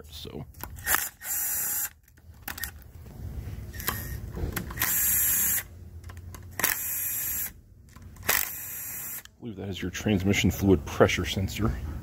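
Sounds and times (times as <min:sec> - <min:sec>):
impact driver running: 0:08.2 - 0:09.3.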